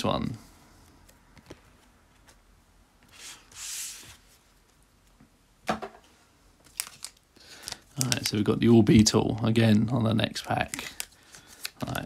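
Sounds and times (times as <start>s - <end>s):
cards sliding on table: 3.0s - 4.3s.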